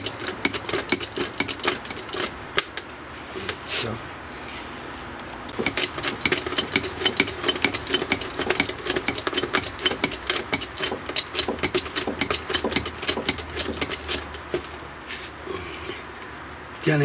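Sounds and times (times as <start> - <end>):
rapid metallic clicking of press tool: 0.0 - 2.8.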